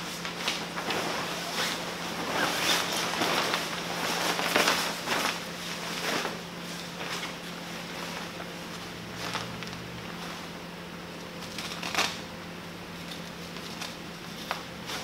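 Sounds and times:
canopy fabric rustling: 0.0 - 10.6.

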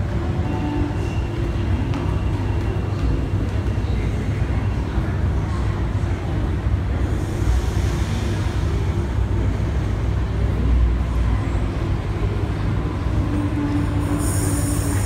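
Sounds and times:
low rumble of underground platform: 0.0 - 15.0.

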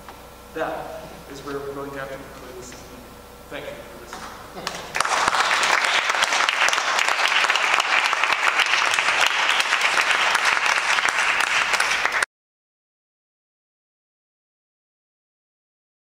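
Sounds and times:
audience applauding: 4.6 - 12.3.

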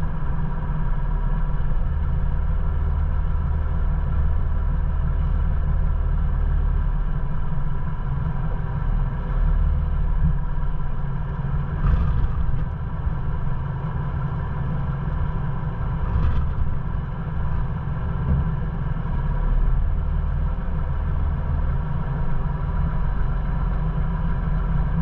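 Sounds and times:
low engine drone: 0.0 - 25.0
tyre and road noise: 7.2 - 25.0.

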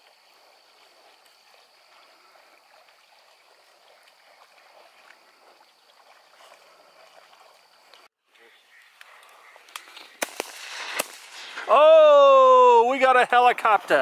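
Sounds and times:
water sloshing and trickling: 0.0 - 8.2.

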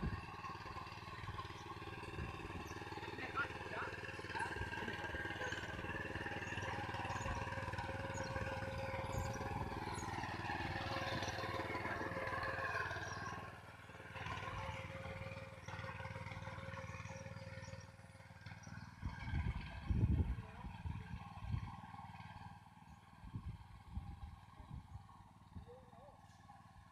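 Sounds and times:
tines churning soil: 0.0 - 18.1
power weeder engine running: 0.0 - 26.9.

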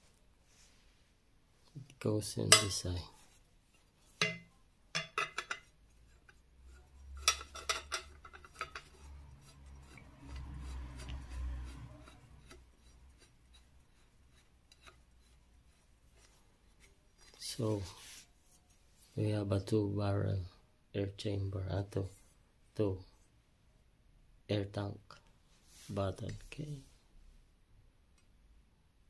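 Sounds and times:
metal fittings clicking: 5.0 - 5.7, 6.3 - 15.4
threads grinding: 5.2 - 17.3.

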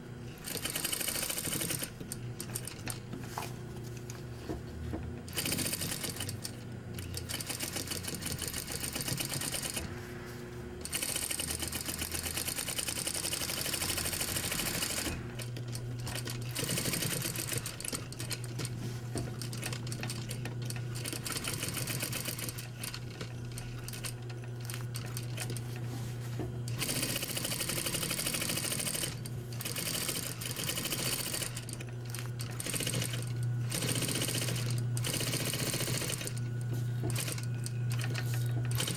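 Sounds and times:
sewing machine stitching: 0.4 - 3.0, 5.3 - 9.9, 10.8 - 25.8, 26.7 - 36.4, 37.0 - 38.9
low steady hum: 9.8 - 11.0.

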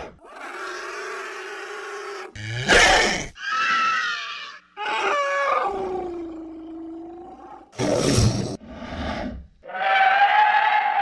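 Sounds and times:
monster cries: 0.2 - 8.3.

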